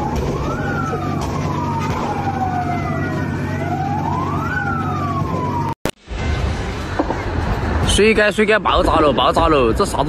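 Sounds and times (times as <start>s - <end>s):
emergency siren wailing: 0.0s - 6.0s
street traffic rumble: 0.0s - 10.0s.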